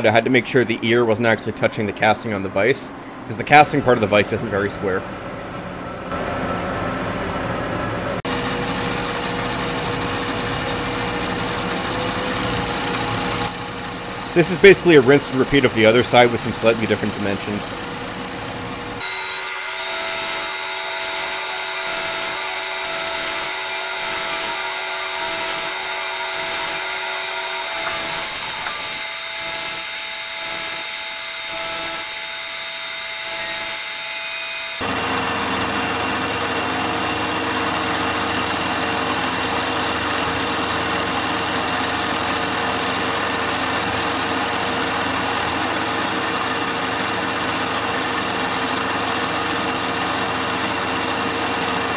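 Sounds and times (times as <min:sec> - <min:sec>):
milling machine cutting metal: 0:08.3 - 0:51.9.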